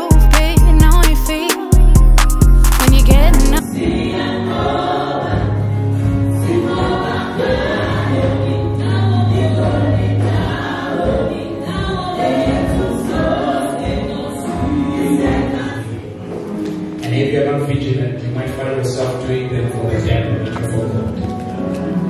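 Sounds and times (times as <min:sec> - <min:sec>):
low bass notes: 0:01.8 - 0:03.6
gospel choir singing: 0:03.2 - 0:22.0.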